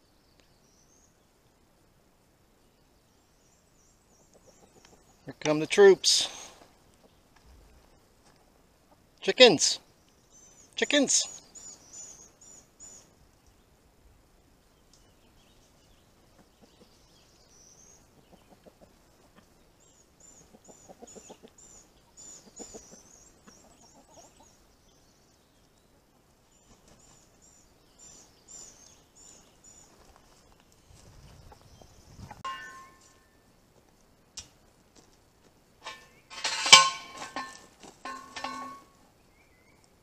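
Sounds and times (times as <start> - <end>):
hens clucking softly: 4.2 - 5.2, 16.2 - 17.0, 18.0 - 19.6, 20.3 - 24.6.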